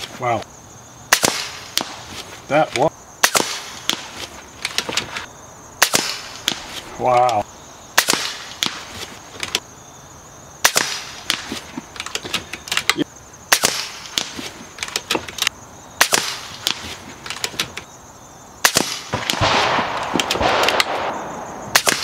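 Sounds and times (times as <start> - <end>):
air rifle shots cracking: 1.1 - 2.1, 3.2 - 5.1, 5.8 - 6.8, 8.0 - 9.6, 10.6 - 15.2, 16.0 - 17.7, 18.6 - 22.0
rustling: 1.6 - 2.9, 3.7 - 5.3, 6.1 - 7.4, 8.4 - 9.6, 16.4 - 17.9.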